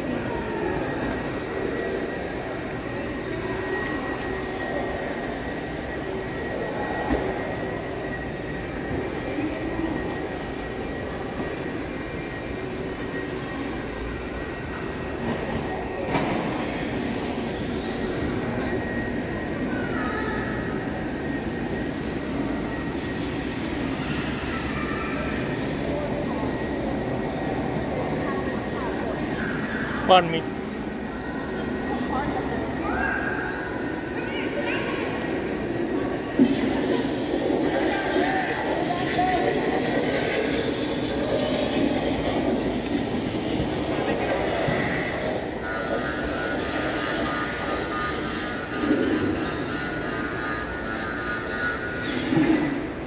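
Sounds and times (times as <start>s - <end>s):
murmur of voices: 0.0s - 53.0s
thin high whine: 0.0s - 53.0s.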